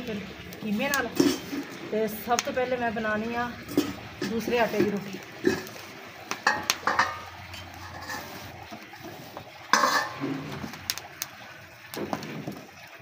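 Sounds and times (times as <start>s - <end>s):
dishes and utensils clinking: 1.2s - 1.6s, 3.7s - 5.7s, 6.4s - 8.4s, 9.7s - 10.6s.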